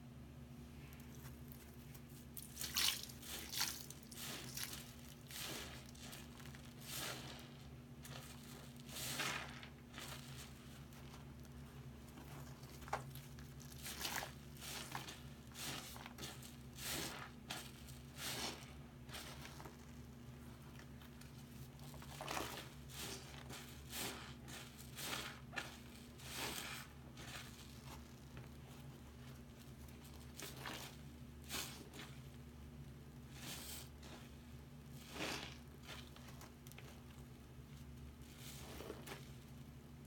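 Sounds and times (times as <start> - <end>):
steady low hum: 0.0 - 40.0
wet sponge squelching: 1.5 - 11.3, 12.2 - 19.9, 21.1 - 32.2, 35.0 - 37.0.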